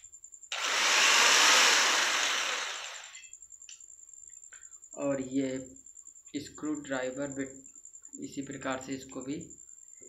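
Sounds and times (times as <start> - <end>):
electric drill spinning: 0.5 - 3.2.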